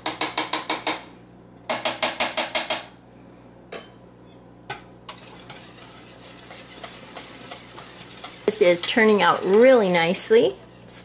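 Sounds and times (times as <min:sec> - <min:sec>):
whisk beating in metal pot: 0:04.8 - 0:11.0.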